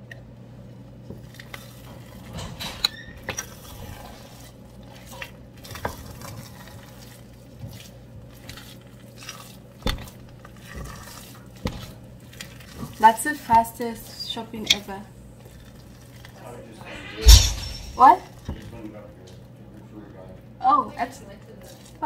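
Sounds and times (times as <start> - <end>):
wooden spoon mashing rice in pot: 3.2 - 14.8
steady low hum: 16.6 - 18.3.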